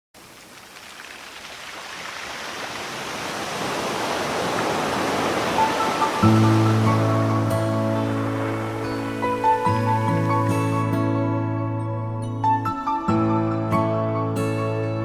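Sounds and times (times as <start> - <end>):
hiss-like noise swell: 0.2 - 10.9.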